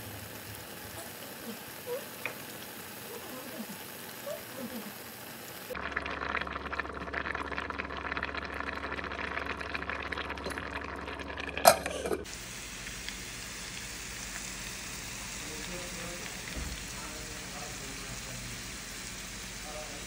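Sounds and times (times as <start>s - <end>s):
steady hiss: 0.0s - 5.8s, 12.3s - 20.0s
fritters sizzling in hot oil: 0.0s - 5.9s, 11.6s - 20.0s.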